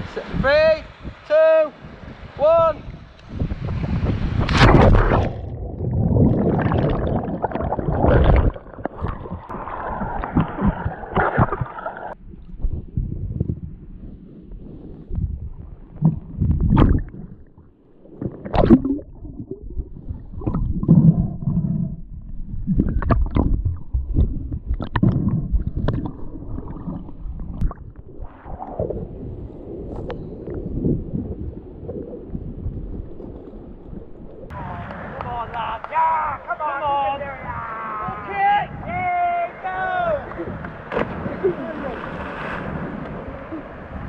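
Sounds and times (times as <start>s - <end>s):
underwater bubbles rumbling: 3.3s - 34.6s
water splashing while swimming: 3.7s - 13.0s, 15.8s - 34.5s.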